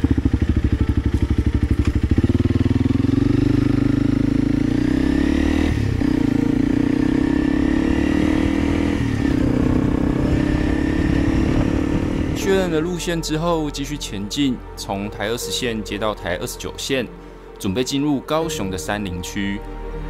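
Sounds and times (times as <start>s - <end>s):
motorcycle engine accelerating: 0.0s - 12.8s.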